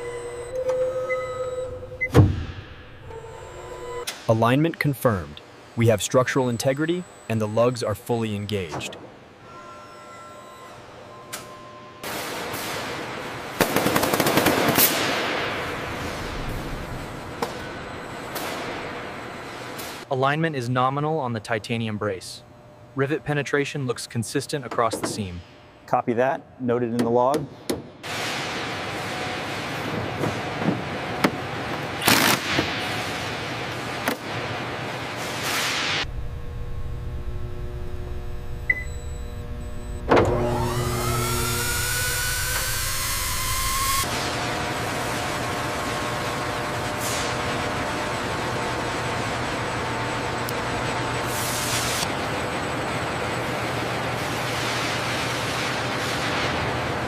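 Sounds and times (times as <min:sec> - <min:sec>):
low electrical hum: 0:00.0 - 0:13.6, 0:14.9 - 0:57.0
steady tones: 0:36.0 - 0:46.7.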